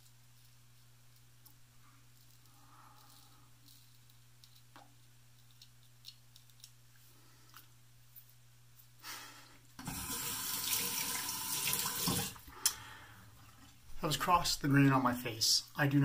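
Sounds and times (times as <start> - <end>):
steady low hum: 0.0 - 9.8
tap water running into basin: 9.8 - 12.5.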